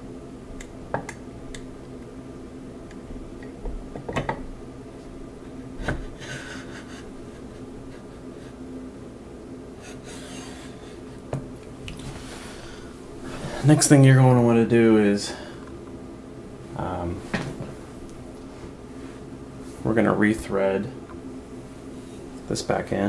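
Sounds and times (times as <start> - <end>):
sharp clicks and knocks: 0.6 - 1.7.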